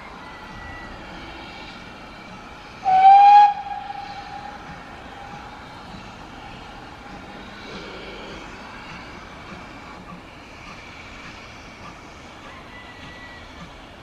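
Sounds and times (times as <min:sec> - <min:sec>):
steady background noise: 0:00.0 - 0:14.0
steam locomotive whistle blast: 0:02.8 - 0:04.7.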